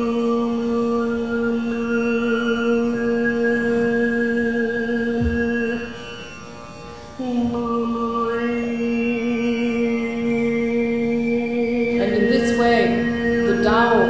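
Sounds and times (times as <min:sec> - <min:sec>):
tanpura drone: 0:00.0 - 0:14.0
overtone singing: 0:07.2 - 0:14.0.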